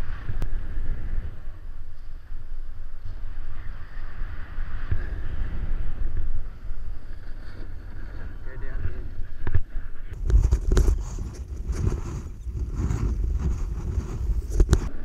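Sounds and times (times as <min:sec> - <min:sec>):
wind rumbling on microphone: 0:00.0 - 0:15.0
snowboard scraping on snow: 0:10.2 - 0:15.0.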